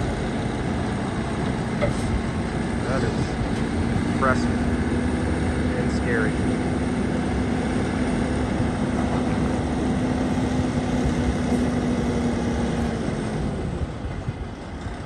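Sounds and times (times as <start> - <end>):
diesel truck engine under load: 0.0 - 15.0.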